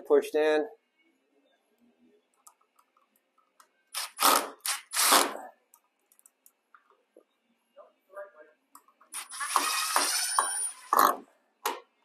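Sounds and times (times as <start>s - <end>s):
cordless drill driving screws: 4.0s - 5.4s, 9.2s - 11.2s.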